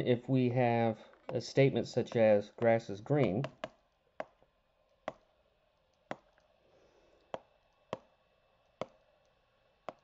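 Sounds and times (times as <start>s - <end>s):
stylus tapping on touchscreen: 1.1s - 1.4s, 2.0s - 4.5s, 5.1s - 5.3s, 6.0s - 6.5s, 7.2s - 9.1s.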